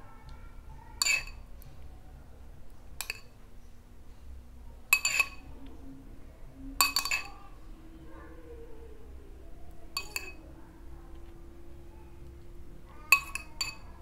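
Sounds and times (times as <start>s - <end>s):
spoon clinking against glass bowl: 1.0s - 1.4s, 3.0s - 3.3s, 4.9s - 5.5s, 6.8s - 7.4s, 10.0s - 10.4s, 13.1s - 13.9s.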